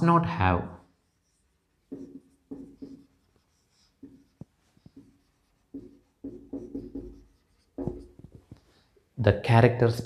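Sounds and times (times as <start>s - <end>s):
marker writing on whiteboard: 0.9s - 8.9s
marker tip ticking on board: 1.9s - 3.1s, 4.0s - 8.2s.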